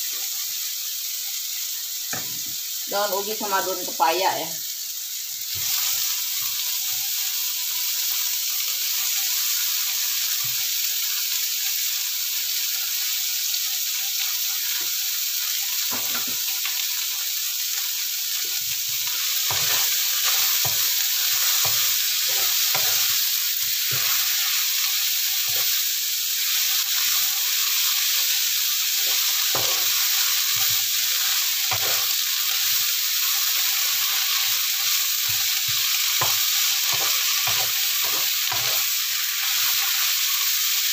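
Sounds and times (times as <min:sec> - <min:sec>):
leaves sizzling in hot oil: 0:00.0 - 0:40.9
wooden spatula scraping pan: 0:21.4 - 0:23.1.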